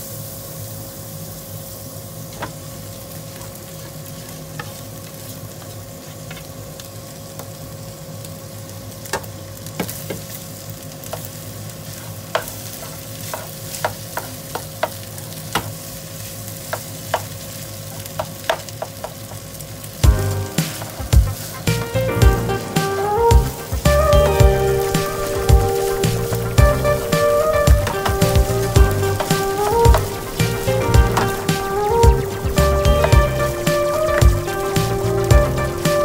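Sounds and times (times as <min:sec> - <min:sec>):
rice sizzling in a frying pan: 0:00.0 - 0:36.0
spatula scraping and clicking on pan: 0:12.4 - 0:15.0.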